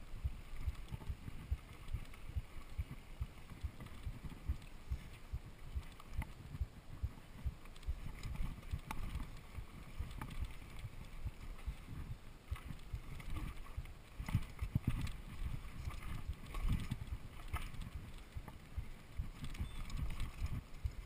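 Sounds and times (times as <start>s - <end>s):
bike tyre rumble on dirt: 0.0s - 21.0s.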